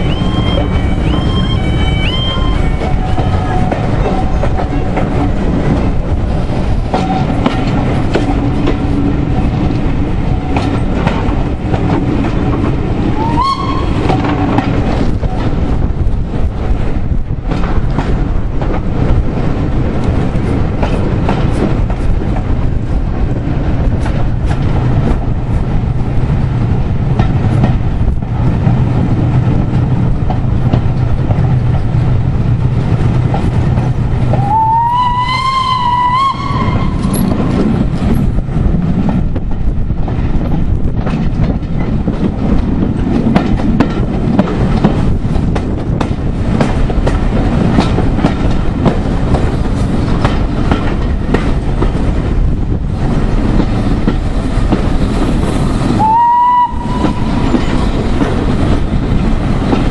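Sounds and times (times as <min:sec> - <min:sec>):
steam whistle: 0:00.0 - 0:04.4, 0:13.2 - 0:14.1, 0:34.4 - 0:37.1, 0:56.0 - 0:57.4
train wheels rumbling on rails: 0:00.0 - 0:59.9.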